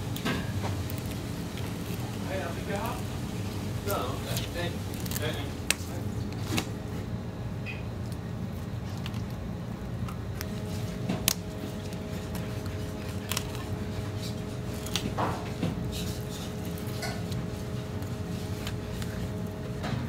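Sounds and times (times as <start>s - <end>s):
kitchen hum: 0.0s - 20.0s
knife scraping on cutting board: 13.8s - 19.2s.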